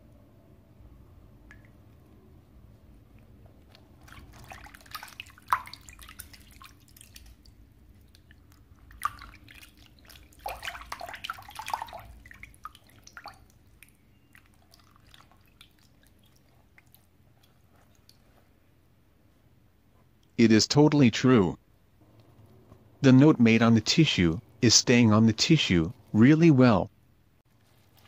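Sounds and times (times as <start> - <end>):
wet tissue squeezed in water: 3.2 - 18.6, 27.5 - 28.0
water splashing and dripping: 3.6 - 18.2.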